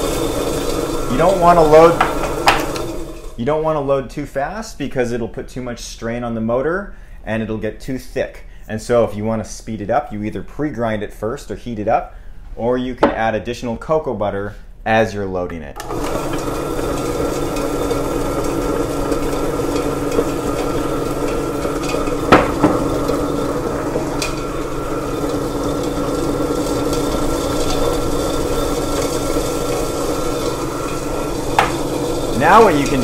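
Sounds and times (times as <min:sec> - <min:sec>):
motor hum: 0:15.8 - 0:33.0.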